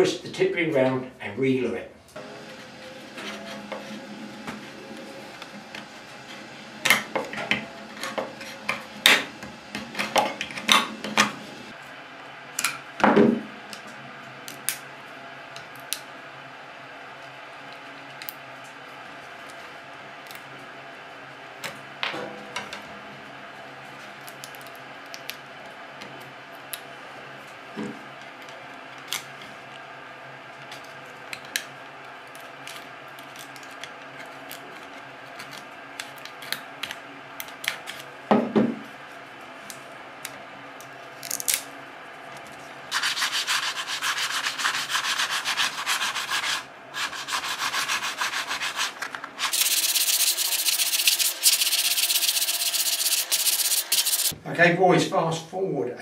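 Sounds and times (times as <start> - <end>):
sandpaper rubbing on rod: 42.9 - 54.3.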